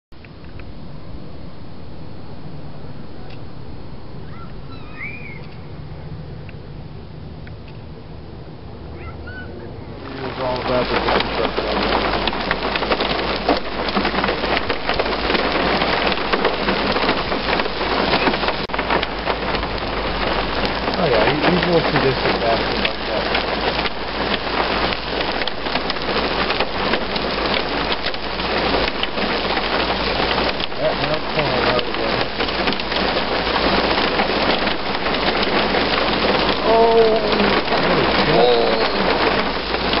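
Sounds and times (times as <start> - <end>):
heavy rain hissing: 9.7 - 40.0
hailstones ticking on ground: 10.0 - 40.0.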